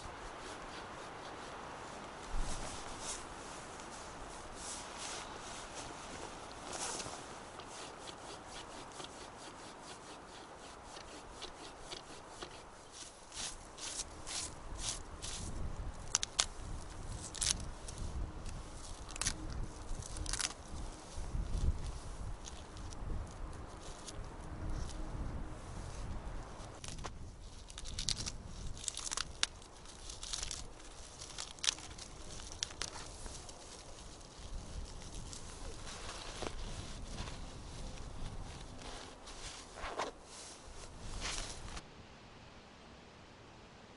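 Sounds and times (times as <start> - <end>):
hand saw rasping on branch: 0.2 - 2.0, 6.8 - 15.6
dry twigs snapping: 13.4 - 17.7, 18.4 - 20.7, 26.8 - 36.6.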